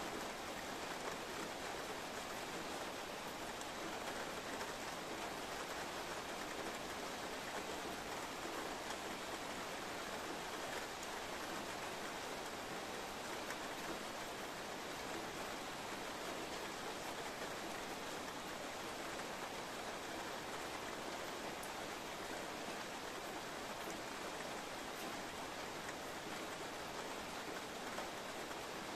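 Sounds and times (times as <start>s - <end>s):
steady rain falling: 0.0s - 28.9s.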